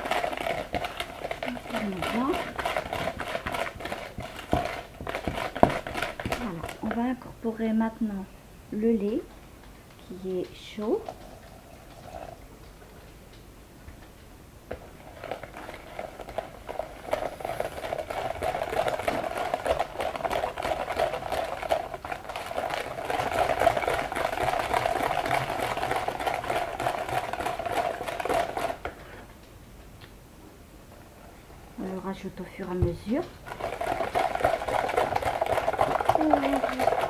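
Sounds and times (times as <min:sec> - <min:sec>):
hand whisk beating in bowl: 0:00.0 - 0:07.1, 0:14.7 - 0:29.0, 0:32.8 - 0:37.0.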